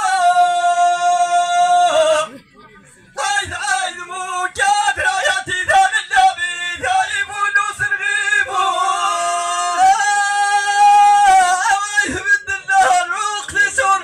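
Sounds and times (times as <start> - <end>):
man chanting into microphone: 3.2 - 14.0.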